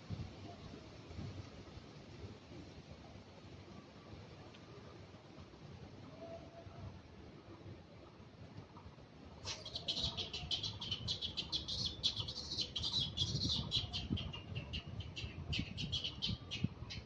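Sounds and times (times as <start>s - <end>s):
animal squeaking chatter: 9.4s - 14.5s.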